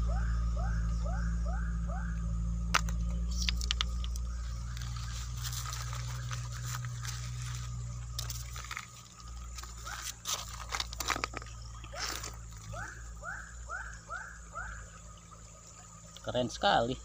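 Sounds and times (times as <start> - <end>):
steady low hum: 0.0 - 17.0
stones and gravel knocking: 2.7 - 12.7.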